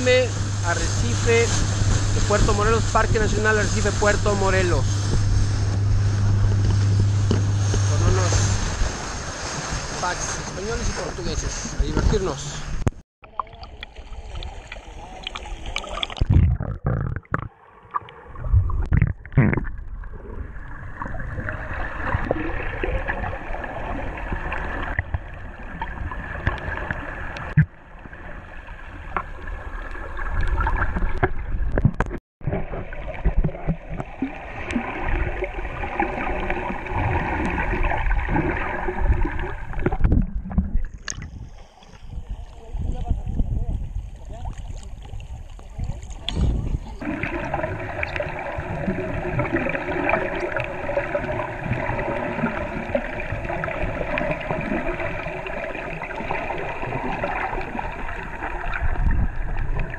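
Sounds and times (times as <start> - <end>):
underwater gurgling and bubbling: 0.0 - 9.9, 12.7 - 59.9
water sloshing: 0.0 - 43.1, 44.0 - 59.9.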